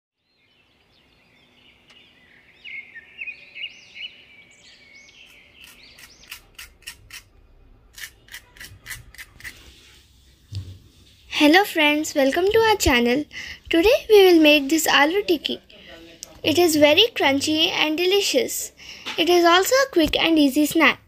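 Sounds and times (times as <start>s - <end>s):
small birds chirping: 0.2s - 7.2s
fried crust crackling under fork: 5.3s - 7.3s, 7.9s - 9.8s.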